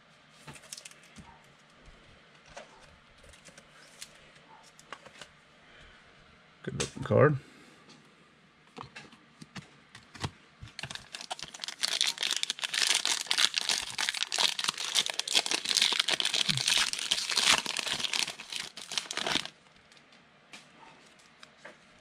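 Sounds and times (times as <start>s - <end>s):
foil pack crinkling: 10.7s - 20.0s.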